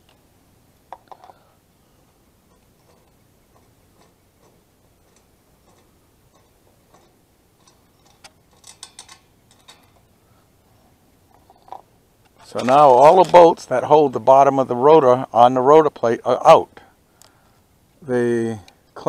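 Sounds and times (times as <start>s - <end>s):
faint metallic ticking of bolt: 2.4s - 10.1s.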